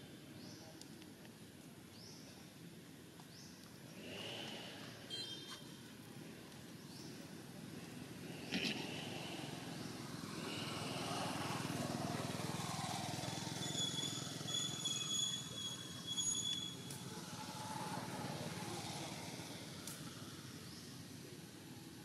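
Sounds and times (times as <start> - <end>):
thin high whistling tone: 13.5 - 17.0.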